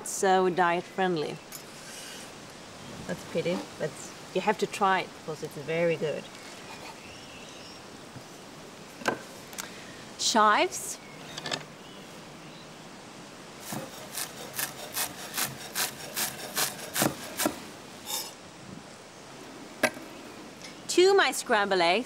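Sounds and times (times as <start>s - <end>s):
knife chopping on wooden board: 13.6s - 17.6s.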